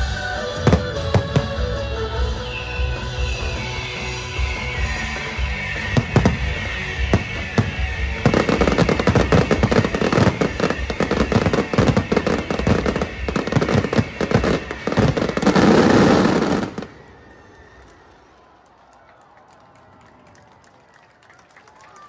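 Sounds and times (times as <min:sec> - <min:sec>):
fireworks crackling: 0:00.0 - 0:18.8
fireworks bursts and bangs: 0:00.4 - 0:01.8, 0:04.7 - 0:17.8.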